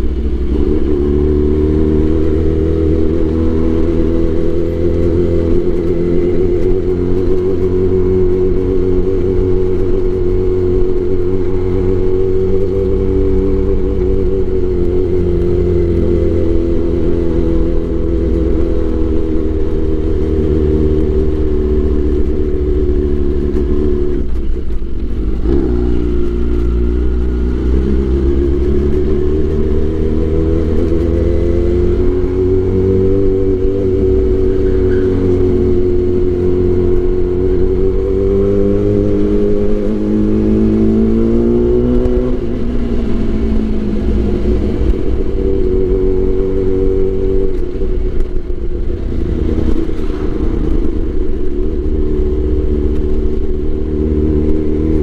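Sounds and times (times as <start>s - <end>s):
motorcycle engine revving: 0.0s - 55.0s.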